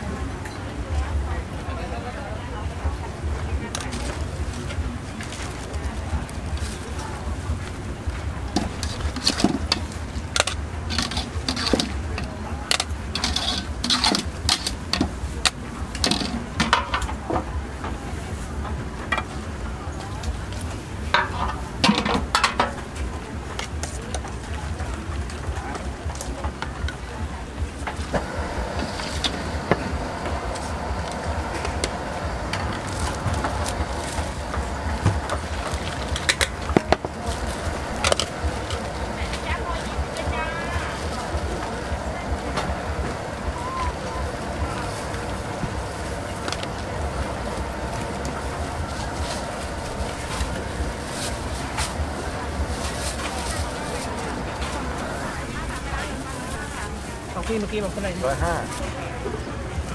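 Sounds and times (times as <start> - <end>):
low outdoor rumble: 0.0 - 59.9
metal utensils clinking: 8.6 - 15.1
steady low hum: 26.8 - 57.6.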